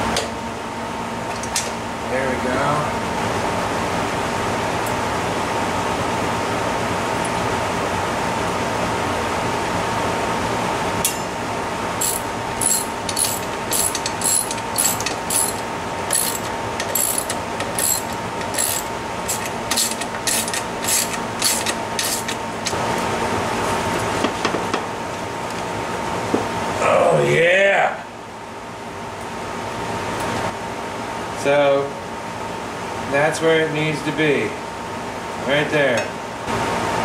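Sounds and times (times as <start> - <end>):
background hum: 11.0 - 22.8
hand tool clicking: 12.0 - 22.4.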